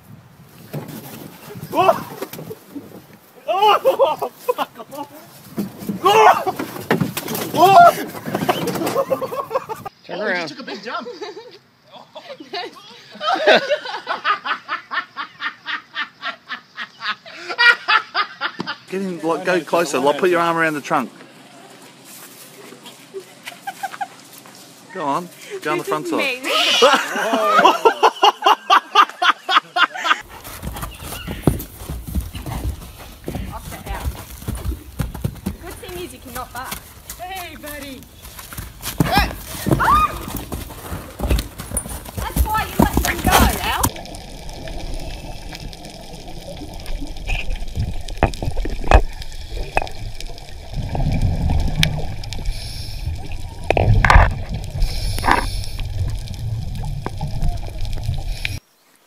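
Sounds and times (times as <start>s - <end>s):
person laughing hard: 3.5s - 5.0s, 26.5s - 30.2s
horse hooves on dirt: 4.3s - 9.9s, 30.2s - 58.6s
muffled underwater gurgling: 43.6s - 58.6s.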